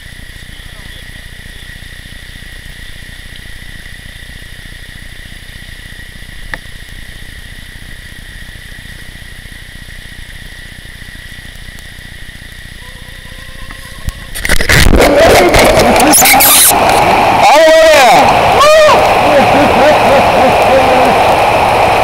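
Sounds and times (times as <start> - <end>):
thin high tone: 12.8 - 17.0
river rapids rushing: 14.3 - 22.0.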